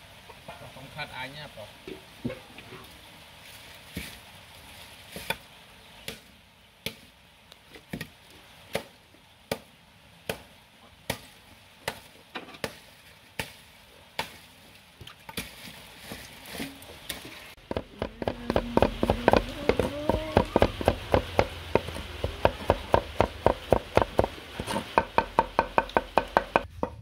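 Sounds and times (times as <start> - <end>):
cleaver striking wooden board: 17.6 - 27.0.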